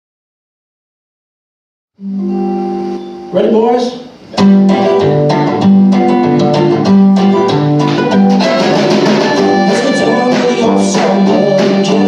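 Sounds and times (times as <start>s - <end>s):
strummed acoustic guitar: 4.2s - 12.0s
drum kit beat: 4.3s - 12.0s
mandolin: 4.4s - 12.0s.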